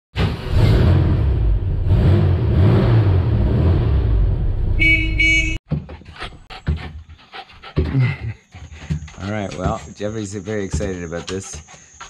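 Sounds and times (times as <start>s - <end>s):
vehicle horn tooting: 4.8s - 5.6s.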